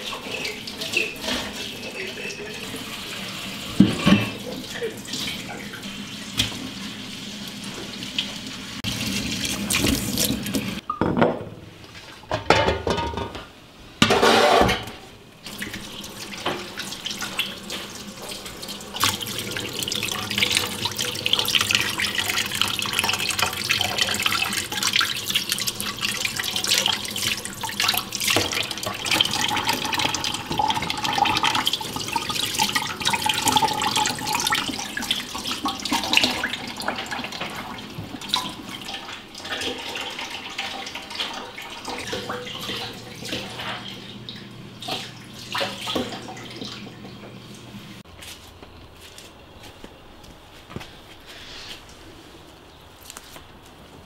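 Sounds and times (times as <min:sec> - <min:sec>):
tap water running into sink: 0:00.0 - 0:10.8, 0:15.5 - 0:47.7.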